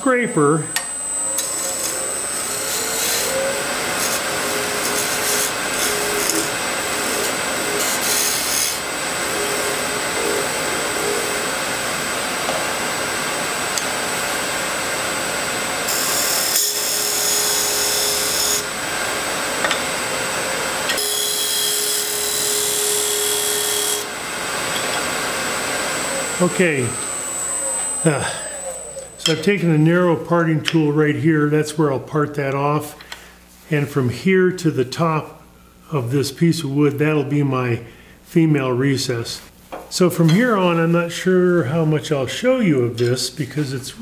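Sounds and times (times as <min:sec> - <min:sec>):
wood lathe whine: 0:00.0 - 0:30.0
tool scraping wood: 0:00.7 - 0:08.8.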